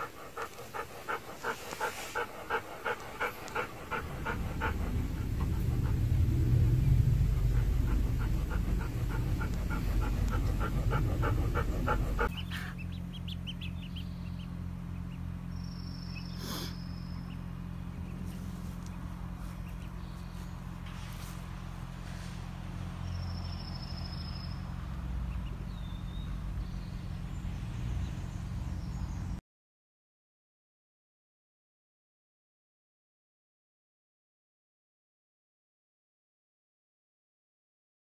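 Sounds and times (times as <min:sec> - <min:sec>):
dog panting: 0:00.0 - 0:13.3
low rumble: 0:00.0 - 0:15.7
steady low hum: 0:00.0 - 0:29.4.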